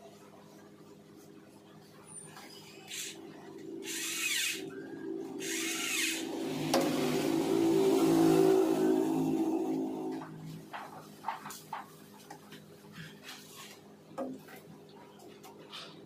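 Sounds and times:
motor running: 2.9 - 10.4.

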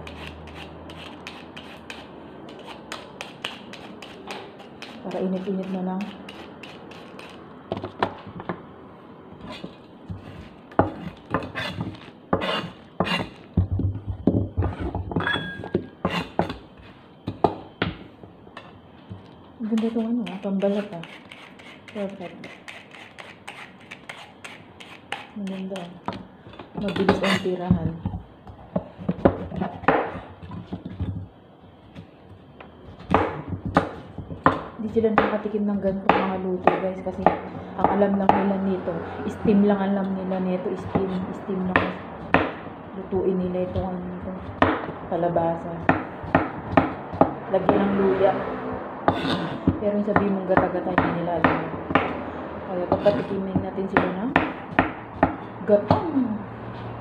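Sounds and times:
short scrapes on cutting board: 9.5 - 13.4, 49.1 - 49.7
cleaver chopping on cutting board: 41.8 - 42.6, 45.8 - 47.9
utensils knocking on chopping board: 43.6 - 45.0.

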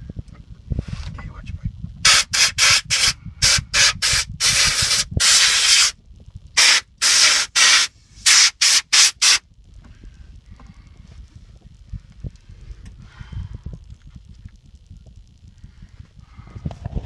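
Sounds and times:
pressurised spray hissing blasts: 2.0 - 6.0, 6.6 - 9.4.

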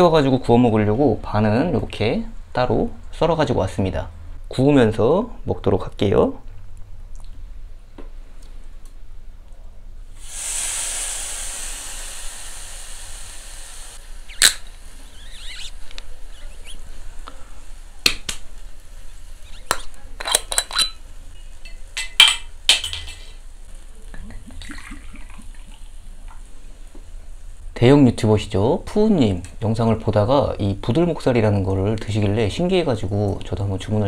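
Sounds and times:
meat sizzling on grill: 10.2 - 20.0, 21.0 - 27.6
liquid glugging into glass: 24.3 - 25.8.

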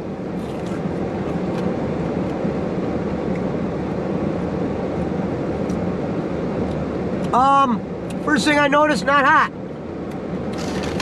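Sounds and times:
low rumble in car cabin: 0.0 - 11.0.

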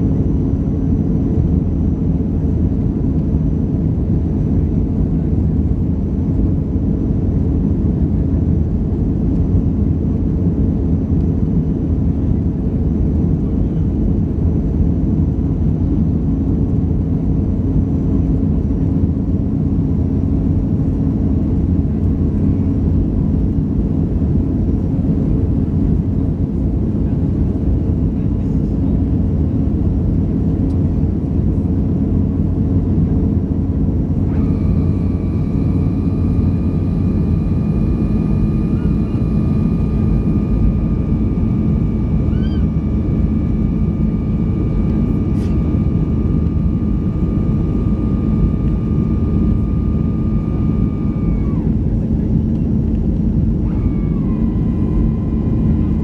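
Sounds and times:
low rumble of jet engines: 0.0 - 56.0
steady high tone: 34.1 - 52.2, 53.3 - 56.0.

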